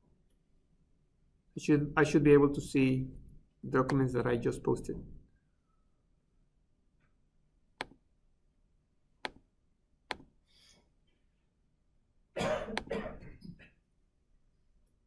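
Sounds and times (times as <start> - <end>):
computer mouse button clicks: 7.8 - 8.0, 10.1 - 10.3.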